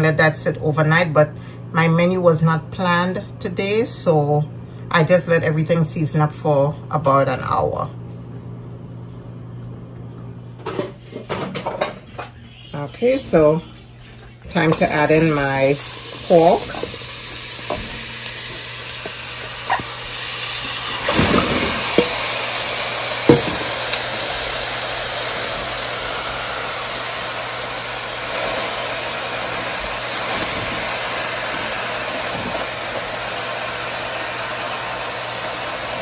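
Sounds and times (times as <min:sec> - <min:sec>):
meat sizzling in a pan: 0:14.6 - 0:36.0.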